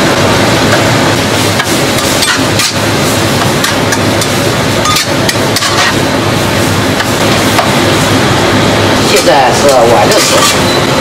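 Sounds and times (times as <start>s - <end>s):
food sizzling in hot oil: 0.0s - 10.9s
spatula scraping and knocking pan: 1.5s - 6.0s.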